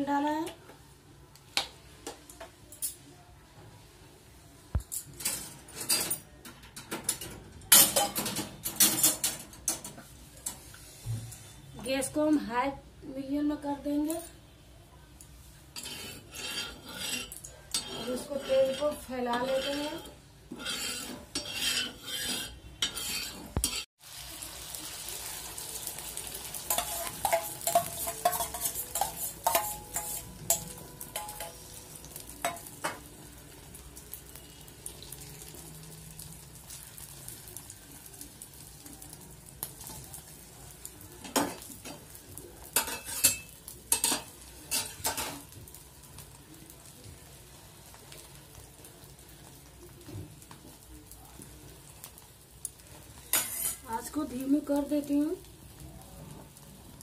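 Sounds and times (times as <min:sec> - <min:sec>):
egg sizzling in oil: 0:15.2 - 0:57.0
spatula scraping a griddle: 0:15.6 - 0:23.9, 0:26.5 - 0:32.6, 0:42.7 - 0:45.5, 0:53.2 - 0:54.1
spoon scraping a griddle: 0:15.7 - 0:23.9, 0:26.5 - 0:33.1, 0:41.2 - 0:45.5, 0:53.2 - 0:54.4.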